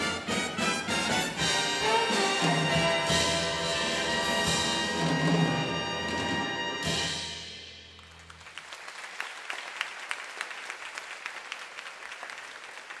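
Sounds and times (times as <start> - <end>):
audience applause: 8.0 - 13.0.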